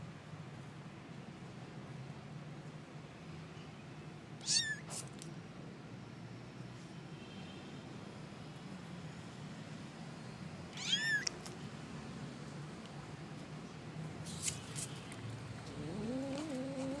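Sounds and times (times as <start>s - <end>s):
kitten meowing: 4.4s - 4.9s, 10.7s - 11.3s, 15.7s - 17.0s.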